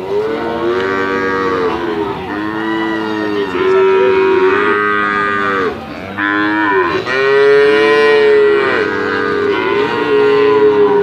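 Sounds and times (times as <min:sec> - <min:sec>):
cattle mooing: 0:00.0 - 0:11.0.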